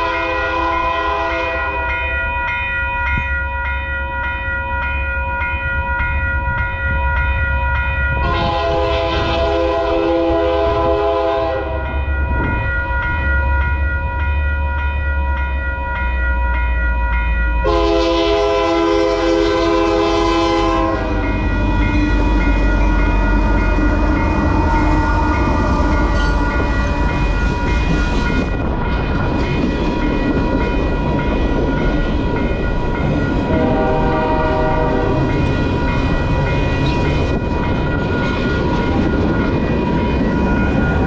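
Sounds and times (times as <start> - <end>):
train air horn blasts: 0.0 - 1.8, 8.2 - 11.9, 17.6 - 22.4, 23.1 - 26.4, 33.5 - 35.4
passing train rumble: 0.0 - 41.0.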